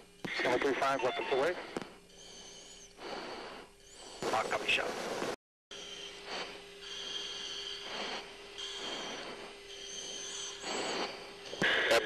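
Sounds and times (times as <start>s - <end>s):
electronic hum and whine: 0.0s - 12.0s
breathing into a mask microphone: 1.6s - 4.3s, 6.1s - 12.0s.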